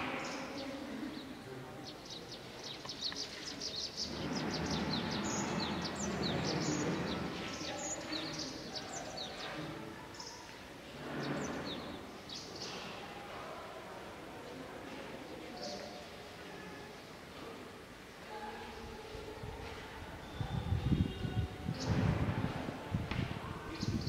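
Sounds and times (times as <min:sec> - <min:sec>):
small birds chirping: 0:00.0 - 0:13.1, 0:23.0 - 0:24.0
steady outdoor background rush: 0:01.2 - 0:09.4.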